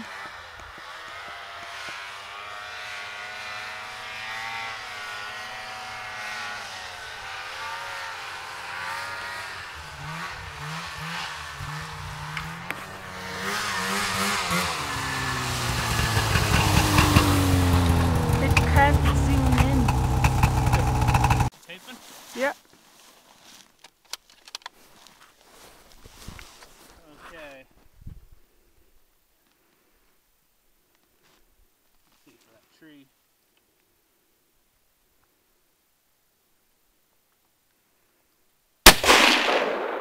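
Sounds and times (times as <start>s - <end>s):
distant snowmobile engine: 0.0s - 21.5s
nearer snowmobile engine: 0.0s - 22.6s.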